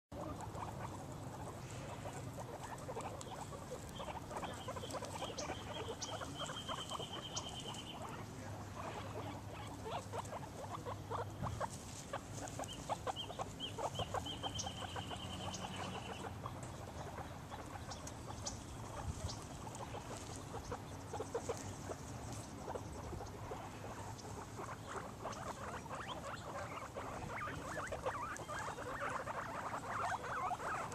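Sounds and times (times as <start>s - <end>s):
grass rustling: 0.1s - 30.9s
guinea pig chutting and squeaking: 0.1s - 30.9s.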